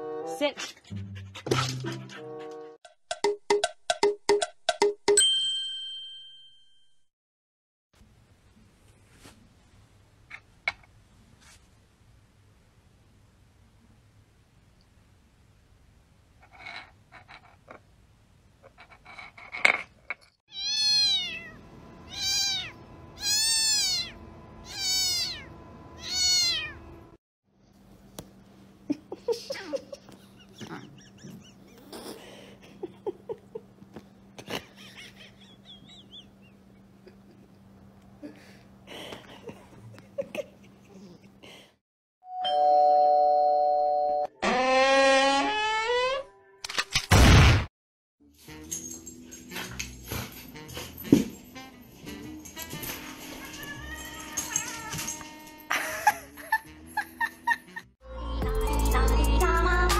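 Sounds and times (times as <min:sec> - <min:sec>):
cat meowing: 0:20.5 - 0:26.8, 0:53.4 - 0:54.9.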